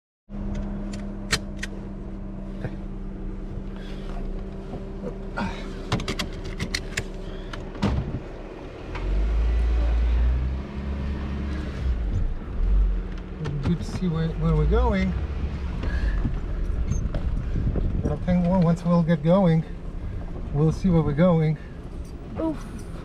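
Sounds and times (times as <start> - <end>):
heavy low rumble: 0.3 - 23.0
vehicle engine hum: 0.3 - 23.0
clicks and knocks over bumps: 5.8 - 8.3, 13.0 - 14.4.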